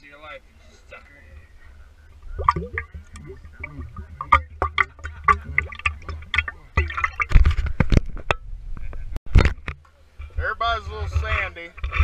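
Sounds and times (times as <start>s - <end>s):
liquid glugging from bottle: 2.3s - 7.6s.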